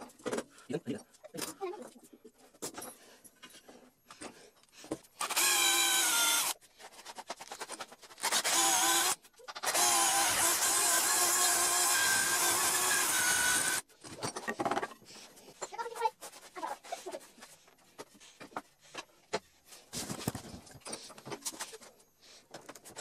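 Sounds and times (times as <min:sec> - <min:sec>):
power drill boring into wood: 0:05.2 - 0:06.6, 0:08.2 - 0:13.8.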